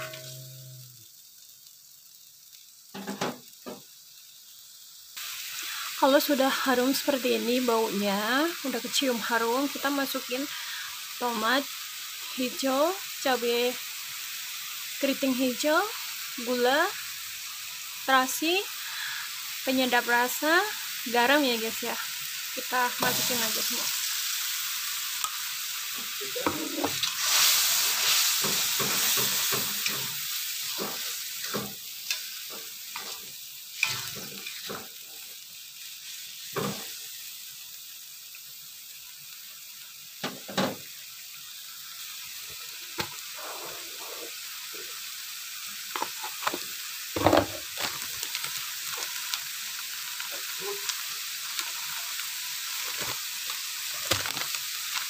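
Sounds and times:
spatula scraping and knocking pan: 0.0 - 0.8, 28.4 - 34.9
spice paste sizzling in a wok: 0.0 - 55.0.

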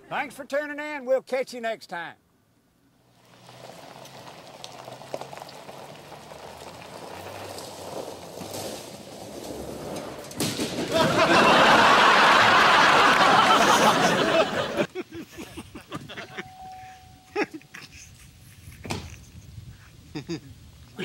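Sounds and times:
pickup truck driving off: 3.0 - 14.9
boat scraping on gravel: 3.1 - 14.8.

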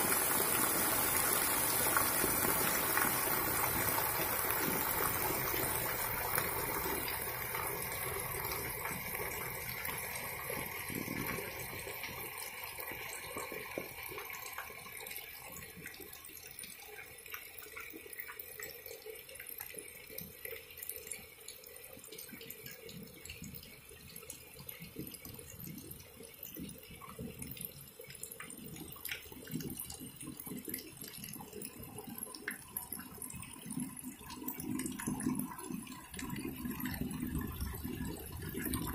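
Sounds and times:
heavy rain falling: 0.0 - 8.8
water pouring off roof: 0.0 - 38.9
water splashing and dripping: 0.0 - 38.9.

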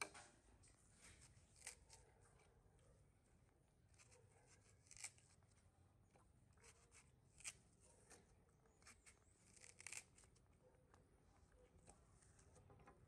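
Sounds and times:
knife paring fruit skin: 1.1 - 2.1, 3.9 - 5.3, 8.8 - 10.3.

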